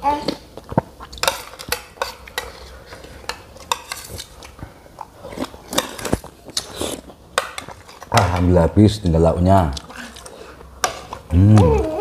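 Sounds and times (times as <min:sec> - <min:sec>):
cutlery clinking on plates: 0:01.1 - 0:04.3.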